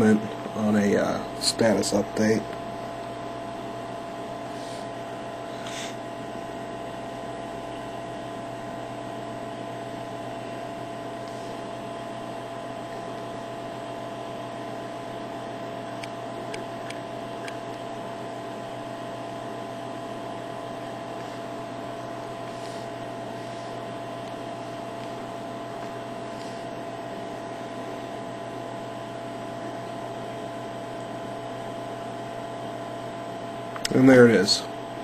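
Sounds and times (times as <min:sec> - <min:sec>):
steady hum and hiss: 0:00.0 - 0:35.0.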